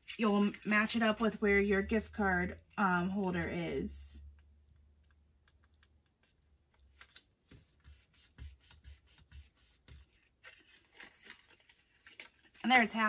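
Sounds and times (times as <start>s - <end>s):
cardstock folding taps and rustles: 4.8s - 12.6s.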